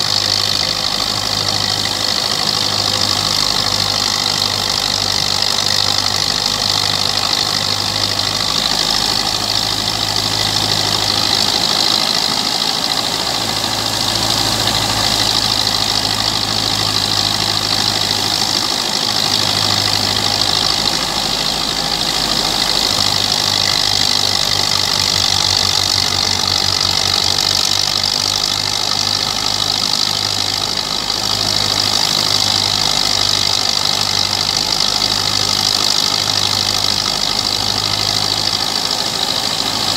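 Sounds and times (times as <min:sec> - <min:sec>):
thresher hissing: 0:00.0 - 0:39.9
tractor diesel engine under load: 0:00.0 - 0:39.9.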